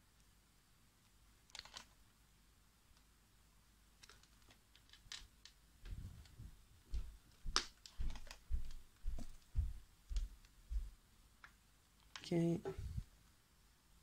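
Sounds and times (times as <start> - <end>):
dull low thuds: 8.5 - 10.9.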